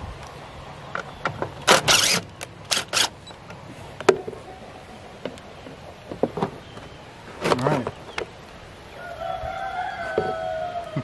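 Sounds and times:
cordless drill driving screw: 1.7 - 3.2.

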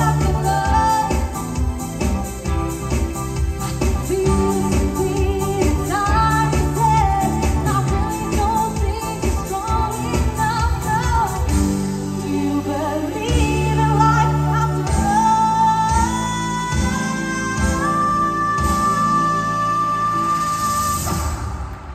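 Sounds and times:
woman singing: 0.0 - 1.7, 3.8 - 21.0
drum beat and bass: 0.0 - 14.1.

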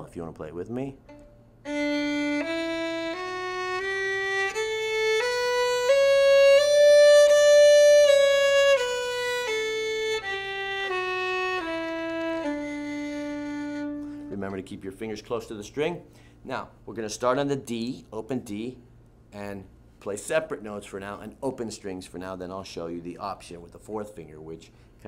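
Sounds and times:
violin playing a bowed scale: 1.1 - 14.6.

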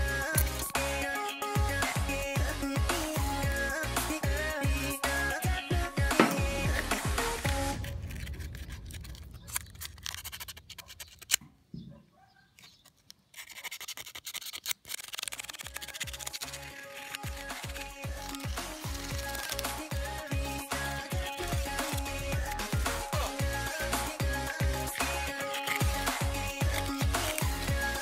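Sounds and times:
electronic pop music: 0.0 - 7.9, 16.5 - 28.0
sandpaper scratching metal pins: 6.2 - 11.4, 12.6 - 20.3, 24.0 - 28.0.

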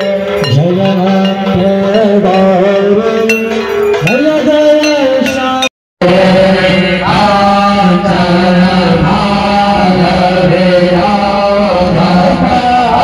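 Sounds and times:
devotional instrumental music: 0.0 - 8.3
metallic clinking: 3.2 - 5.7.

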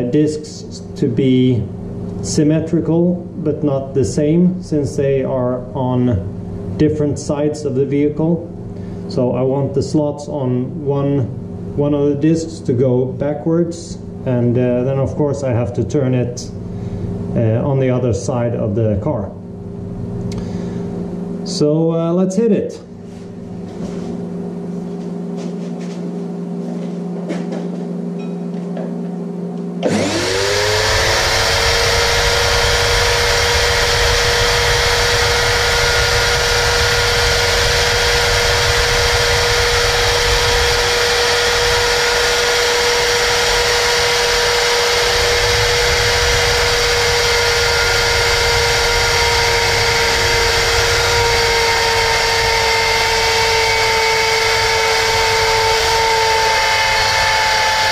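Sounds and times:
steady low hum: 0.0 - 57.9
router whining at high speed: 29.8 - 57.9.

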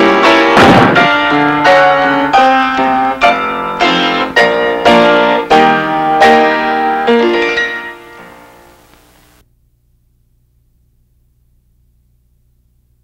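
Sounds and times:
piano chords: 0.0 - 8.9.

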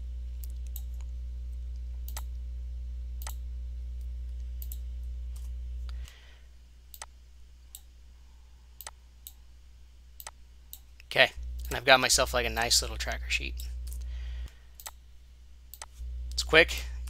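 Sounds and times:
low electrical hum: 0.0 - 17.0
computer mouse clicking: 2.1 - 2.3, 4.6 - 4.8, 6.9 - 7.1, 14.8 - 15.0, 15.7 - 16.0.

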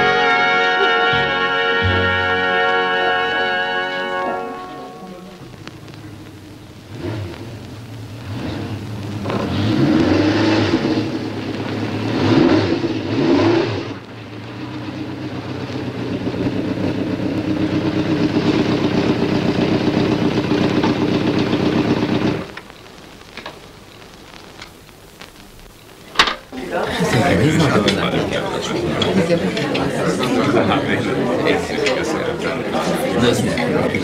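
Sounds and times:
motorcycle engine revving: 6.1 - 22.6
faint clicks: 22.4 - 26.5.

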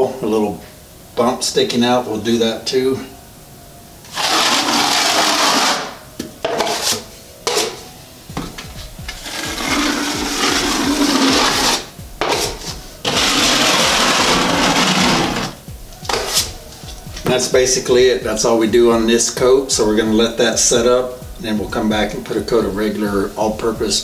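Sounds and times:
drywall knife scraping compound: 4.1 - 7.8, 9.1 - 16.6.

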